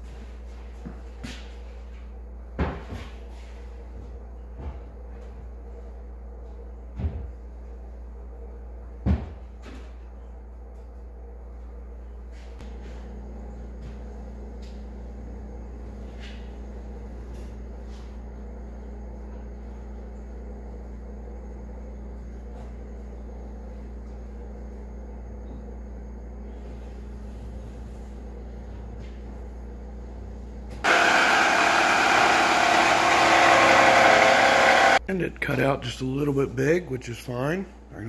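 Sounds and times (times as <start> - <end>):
power saw cutting plywood: 30.8 - 35.0.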